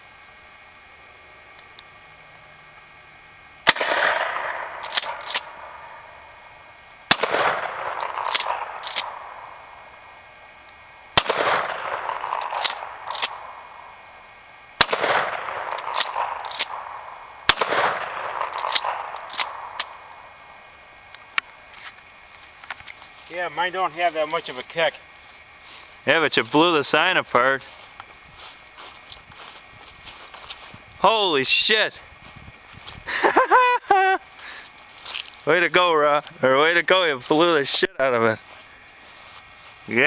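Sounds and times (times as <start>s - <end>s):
shotgun blasts echoing: 3.6s - 6.2s, 7.1s - 9.8s, 11.2s - 14.0s, 14.8s - 20.5s
sharp clicks: 3.7s - 6.0s, 7.1s - 9.5s, 10.7s - 14.2s, 14.8s - 20.1s.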